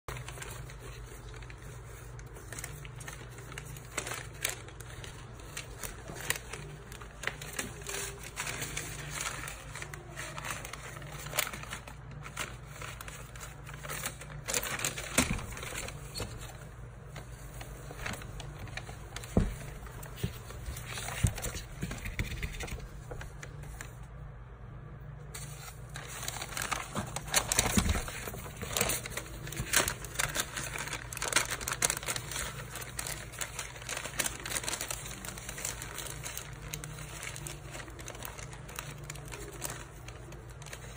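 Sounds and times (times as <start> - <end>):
paper bag rustling: 0.1 - 24.1, 25.3 - 40.9.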